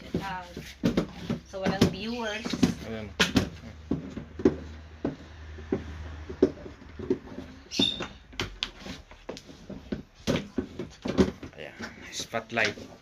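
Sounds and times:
high squeak: 7.7s - 8.2s.

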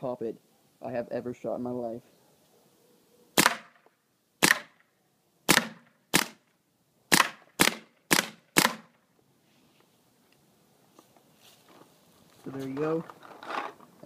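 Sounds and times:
paintball marker firing: 3.4s - 3.8s, 4.4s - 4.8s, 5.5s - 6.4s, 7.1s - 9.0s.

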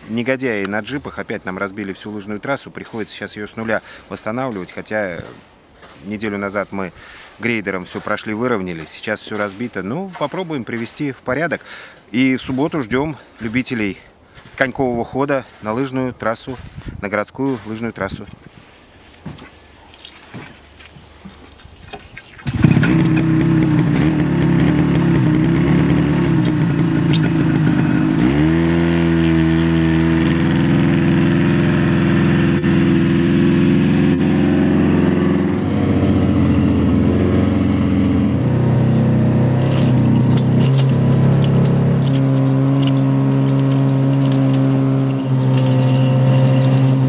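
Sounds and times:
snowmobile engine: 22.4s - 47.0s.

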